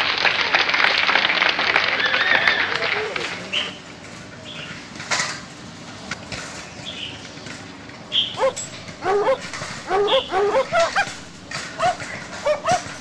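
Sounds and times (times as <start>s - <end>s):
small dog yipping: 8.3s - 13.0s.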